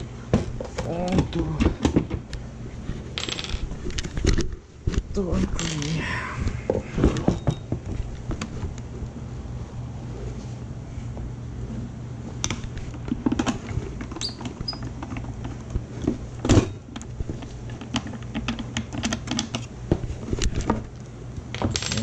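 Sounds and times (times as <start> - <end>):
low hum: 2.4 - 14.0.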